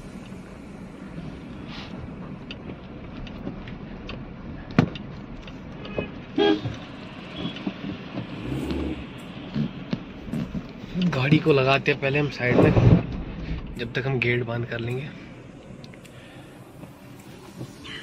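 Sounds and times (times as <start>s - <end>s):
car engine and road rumble: 0.0s - 18.0s
car horn toot: 5.8s - 6.8s.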